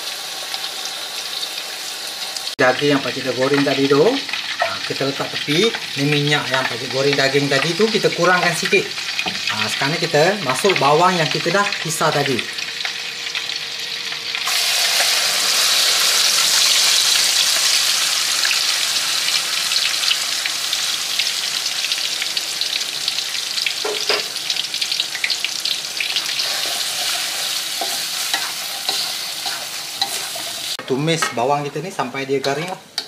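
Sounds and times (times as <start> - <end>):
onions sizzling in hot oil: 0.0 - 33.0.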